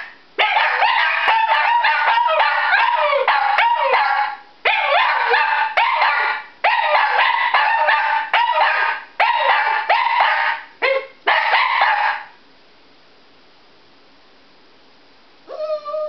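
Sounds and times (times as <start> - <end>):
dogs howling: 0.5 - 8.8.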